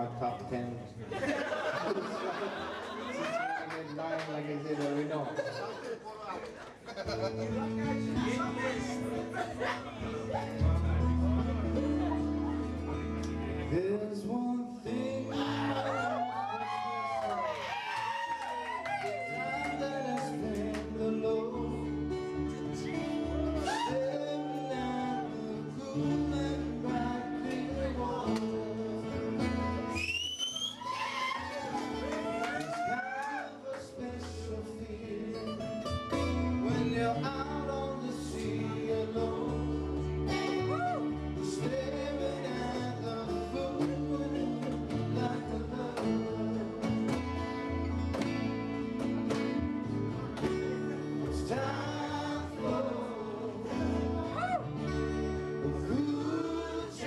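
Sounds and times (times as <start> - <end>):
guitar: 0.0 - 57.0
bass line: 7.2 - 14.0
person singing: 13.5 - 17.5, 18.9 - 29.5, 36.6 - 47.1, 50.9 - 57.0.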